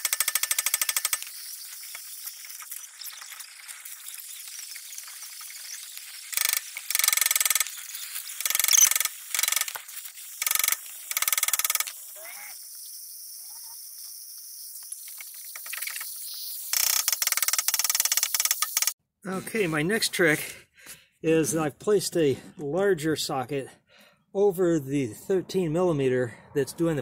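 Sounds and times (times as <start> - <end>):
torch hissing: 0.5 - 19.0.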